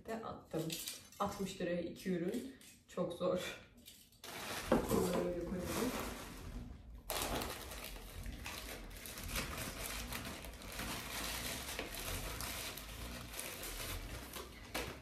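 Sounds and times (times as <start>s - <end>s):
plastic wrapping crinkling: 3.8s - 15.0s.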